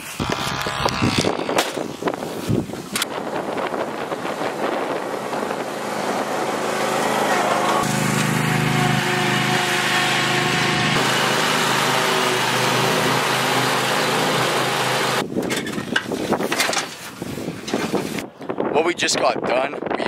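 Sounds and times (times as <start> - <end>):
riding lawn mower engine: 0.0 - 16.0.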